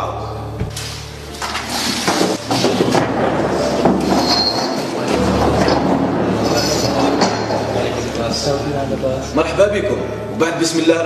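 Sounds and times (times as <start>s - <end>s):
chairs scraping on floor: 0.6s - 8.7s.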